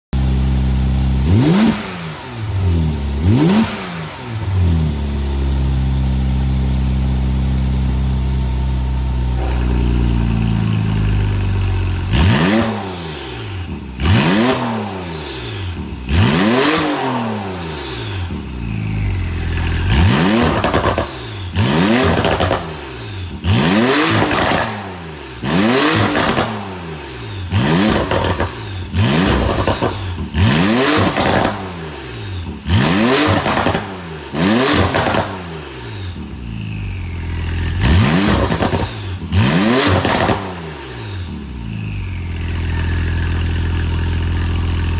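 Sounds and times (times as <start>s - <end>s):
car engine idling: 0.2s - 1.5s, 4.0s - 14.2s, 17.7s - 23.6s, 41.1s - 44.9s.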